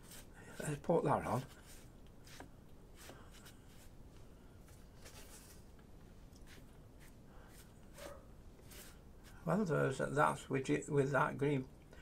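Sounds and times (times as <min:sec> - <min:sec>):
paintbrush rubbing on paper: 0:00.0 - 0:04.0, 0:06.4 - 0:09.5.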